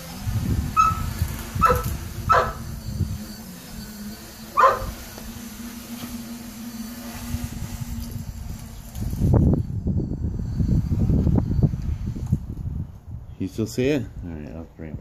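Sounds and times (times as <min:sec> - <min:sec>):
wind rumbling on microphone: 0:00.0 - 0:05.5, 0:07.0 - 0:15.0
quadcopter motors humming: 0:00.0 - 0:15.0
dog barking: 0:00.8 - 0:01.0, 0:01.6 - 0:02.6, 0:04.6 - 0:05.0.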